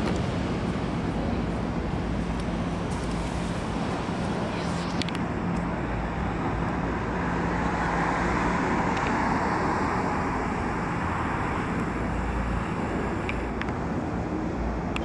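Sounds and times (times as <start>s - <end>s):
low steady drone: 0.0s - 15.0s
road traffic hum: 0.0s - 15.0s.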